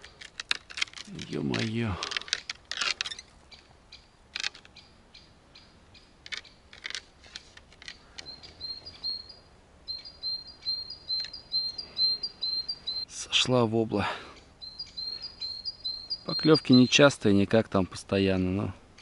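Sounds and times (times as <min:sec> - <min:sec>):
sharp rustling clicks: 0:00.0 - 0:03.7, 0:04.3 - 0:04.8, 0:06.2 - 0:08.6
bird chirping: 0:03.0 - 0:07.0, 0:07.8 - 0:13.6, 0:14.2 - 0:17.5.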